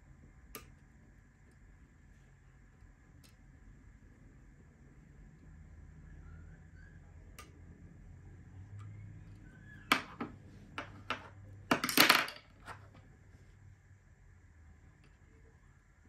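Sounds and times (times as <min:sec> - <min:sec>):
metal tools clinking on wood: 0:09.9 - 0:12.8
metal tools clattering: 0:11.1 - 0:12.4.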